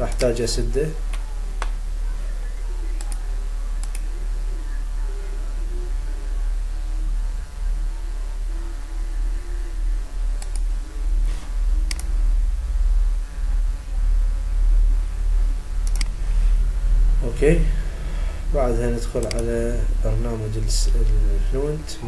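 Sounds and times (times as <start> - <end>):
steady low hum: 0.0 - 22.0
computer mouse clicks: 0.1 - 0.4, 3.0 - 3.2, 3.8 - 4.1, 10.4 - 10.7, 11.8 - 12.1, 15.8 - 16.2, 19.2 - 19.4.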